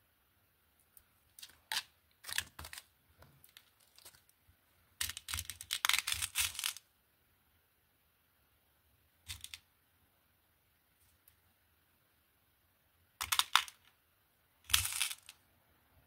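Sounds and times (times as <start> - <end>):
beads rustling on fabric mat: 0.9 - 4.4, 5.0 - 6.8, 14.6 - 15.4
glass beads clicking: 14.7 - 15.4.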